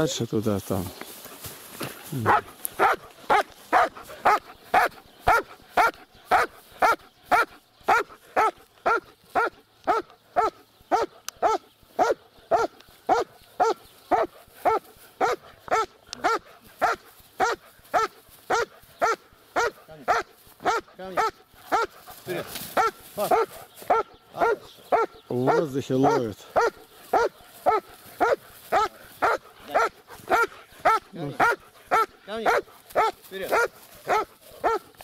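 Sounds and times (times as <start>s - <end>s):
dog barking: 2.2s - 22.0s, 22.7s - 35.0s.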